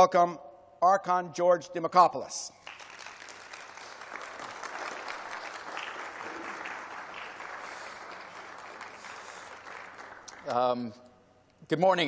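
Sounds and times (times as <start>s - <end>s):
audience applauding: 2.6s - 10.8s.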